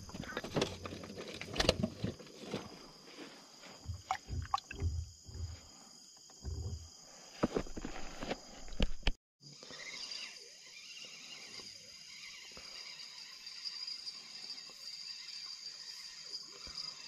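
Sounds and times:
fishing gear knocking in boat: 0:03.8 - 0:05.6.

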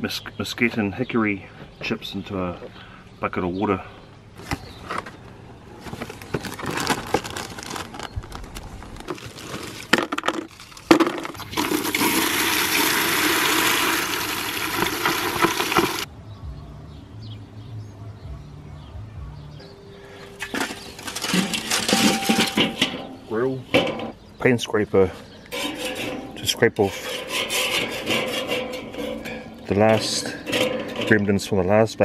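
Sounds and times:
wood chips clattering into bucket: 0:09.0 - 0:16.1, 0:20.4 - 0:24.0.

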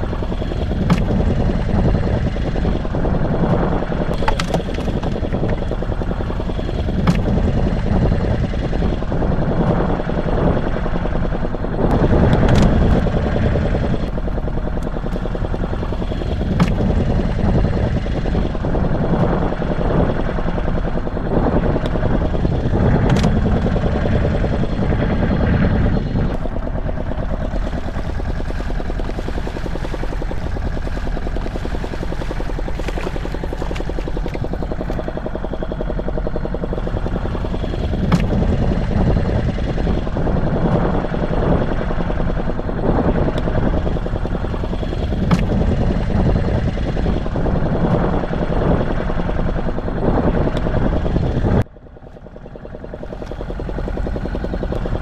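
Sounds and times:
boat motor idling: 0:00.0 - 0:55.0
sharp knocks and clicks: 0:00.7 - 0:01.7, 0:04.1 - 0:08.1, 0:15.9 - 0:17.6, 0:37.1 - 0:38.9, 0:45.1 - 0:46.1.

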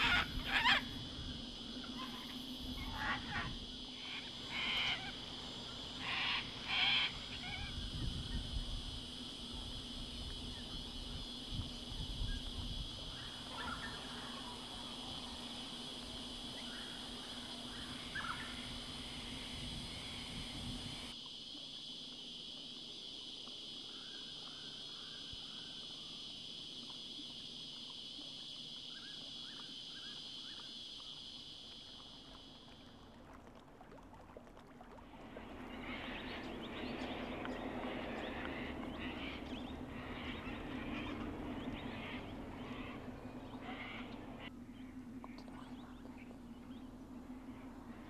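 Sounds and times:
cockatoo calls: 0:00.0 - 0:01.0, 0:01.9 - 0:05.2, 0:06.0 - 0:07.8, 0:13.5 - 0:14.6.

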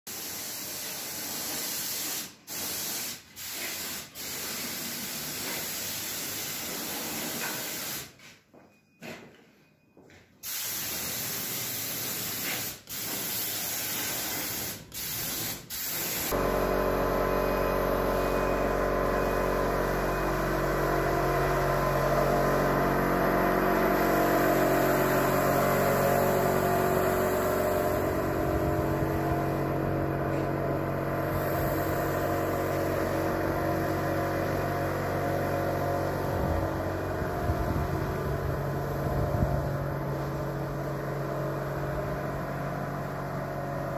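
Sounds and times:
spray gun hissing: 0:00.1 - 0:08.1, 0:10.4 - 0:16.8, 0:17.8 - 0:37.2, 0:40.0 - 0:42.3
mechanical hum and drone: 0:16.3 - 0:43.9.

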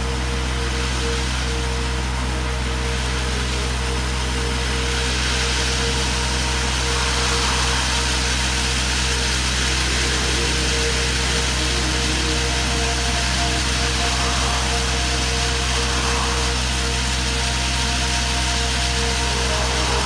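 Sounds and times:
diesel engine running: 0:00.0 - 0:20.0
rushing hiss: 0:00.0 - 0:20.0.

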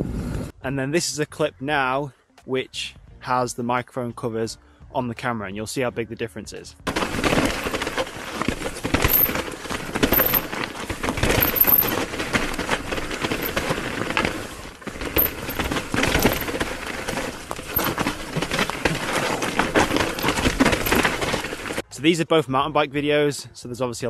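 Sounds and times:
bike knocks and rattles: 0:06.9 - 0:21.8
bike tyre and trail noise: 0:06.9 - 0:21.8.

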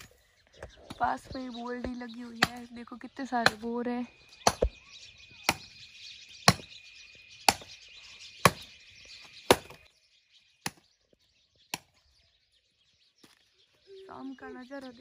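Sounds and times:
axe chopping firewood: 0:02.4 - 0:02.6, 0:04.4 - 0:04.7, 0:06.5 - 0:06.7, 0:07.5 - 0:07.7, 0:09.5 - 0:09.8.

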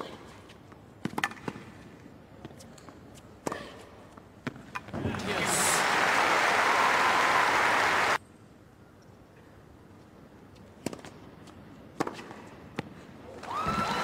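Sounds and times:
crowd applause: 0:05.2 - 0:08.2.

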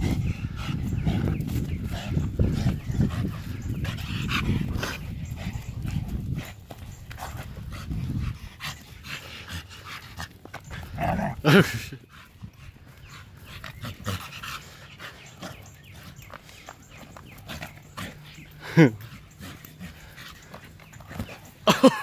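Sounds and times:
dog vocal sound: 0:10.8 - 0:11.8.

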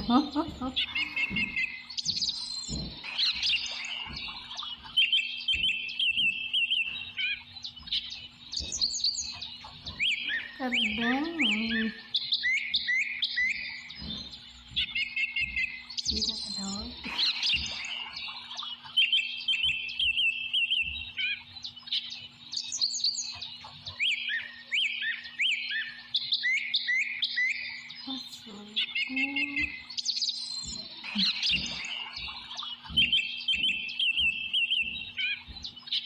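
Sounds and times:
birds chirping: 0:00.0 - 0:36.0.

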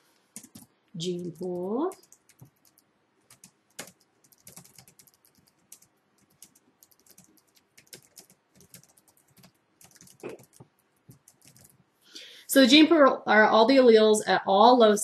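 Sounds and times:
typing on keyboard: 0:00.4 - 0:11.8.

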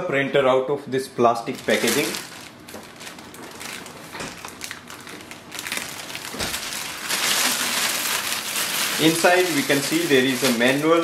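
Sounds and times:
plastic bag crinkling: 0:01.5 - 0:11.0.

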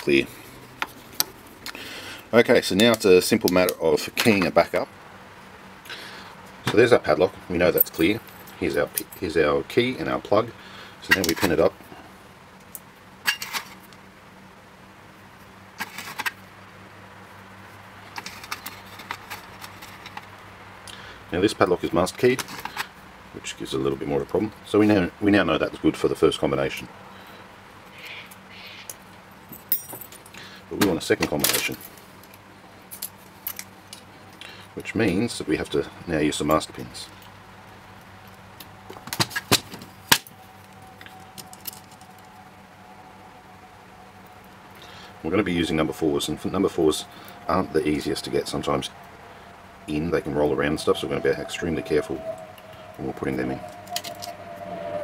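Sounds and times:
small metallic clicks and clinks: 0:31.4 - 0:34.5.

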